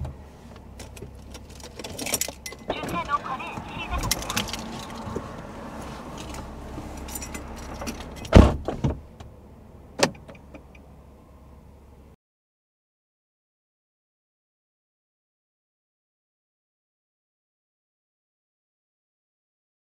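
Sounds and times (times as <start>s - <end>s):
car door shutting: 0.0s - 9.4s, 10.0s - 10.9s
keys jangling: 1.2s - 2.7s, 4.0s - 5.1s, 7.0s - 8.3s.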